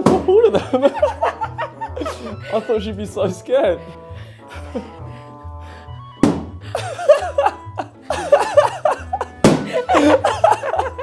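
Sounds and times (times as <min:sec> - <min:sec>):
balloons popping: 0:00.0 - 0:00.5, 0:06.1 - 0:06.6, 0:09.4 - 0:09.8
background music with bass: 0:00.0 - 0:11.0
woman laughing: 0:00.3 - 0:02.7, 0:06.7 - 0:11.0.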